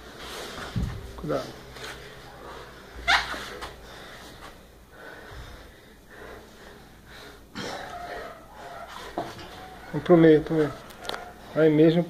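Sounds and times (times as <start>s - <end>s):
people breathing and exhaling: 0.0s - 11.6s.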